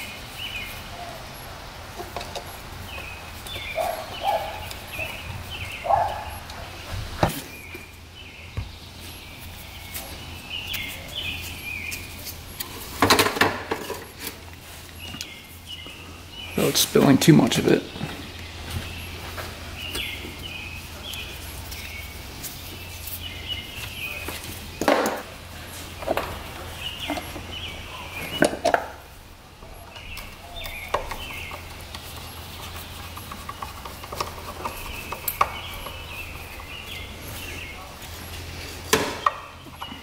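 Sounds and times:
birds chirping: 0:00.0 - 0:40.0
steady low hum: 0:00.0 - 0:40.0
sharp knocks and clicks: 0:29.9 - 0:36.8.

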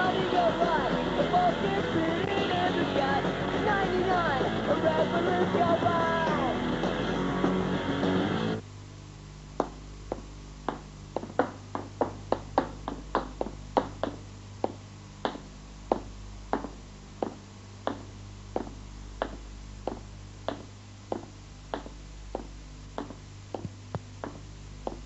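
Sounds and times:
rock guitar music: 0:00.0 - 0:08.6
steady low hum: 0:00.0 - 0:25.0
footsteps on hard stairs: 0:09.6 - 0:25.0.

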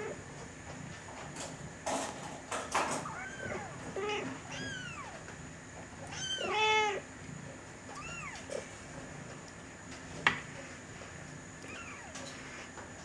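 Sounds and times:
cats meowing: 0:03.0 - 0:05.3, 0:06.0 - 0:07.1, 0:07.9 - 0:08.6, 0:11.6 - 0:12.4.

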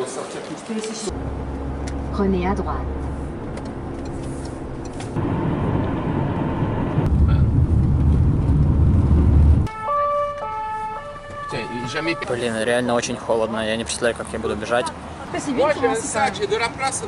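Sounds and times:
car engine and road rumble: 0:00.1 - 0:17.0
two-tone emergency siren: 0:09.7 - 0:12.5.

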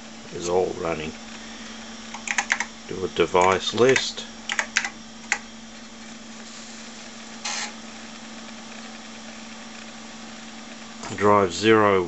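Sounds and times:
computer and hard drive humming: 0:00.0 - 0:12.0
keyboard keystrokes: 0:02.1 - 0:02.7, 0:03.4 - 0:05.4.

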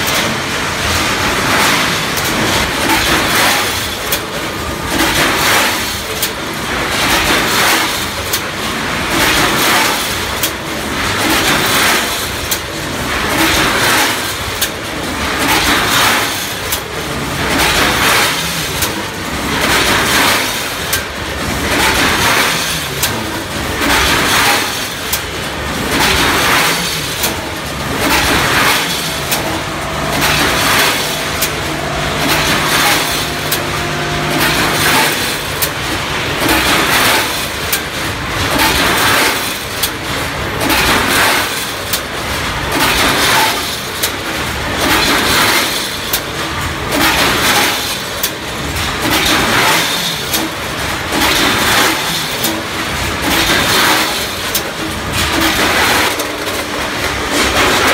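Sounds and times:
packing machine running: 0:00.0 - 0:57.9
sharp machine clicks: 0:23.8 - 0:37.9.

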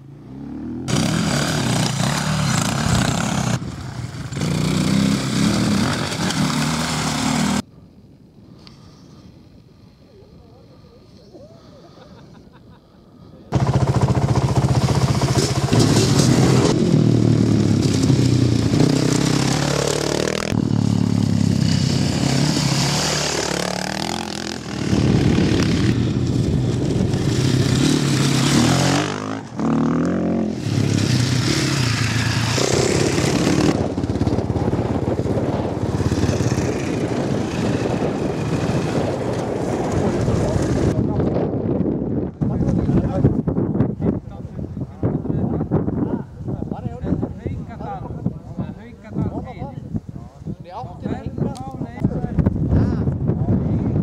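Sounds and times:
dirt bike engines revving: 0:00.0 - 0:07.6, 0:13.5 - 0:43.3.

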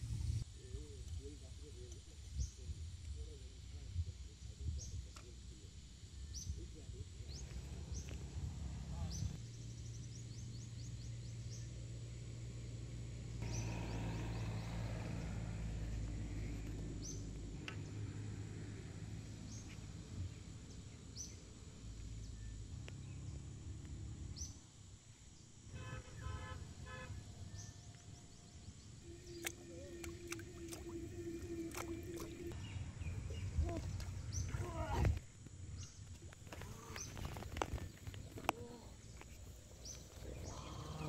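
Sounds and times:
steady low rumble: 0:00.0 - 0:05.7.

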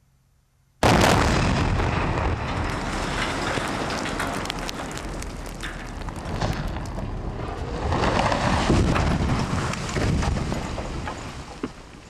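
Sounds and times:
tower crashing to the ground: 0:00.8 - 0:11.8
debris cracking: 0:00.8 - 0:12.0.

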